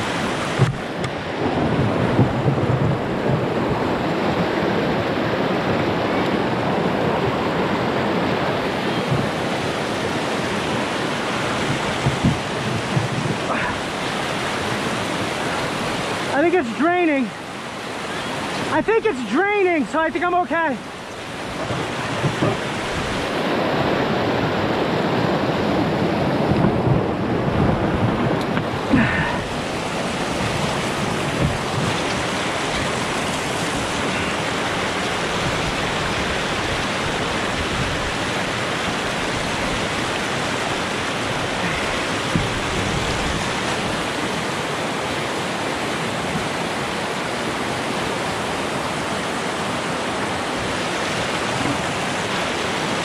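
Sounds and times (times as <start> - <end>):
river water rushing over rapids: 0.0 - 53.0.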